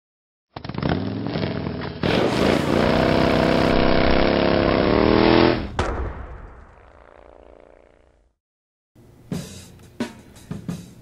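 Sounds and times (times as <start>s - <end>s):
engine running rising in pitch: 1.2s - 5.8s
road and wind noise: 2.2s - 5.8s.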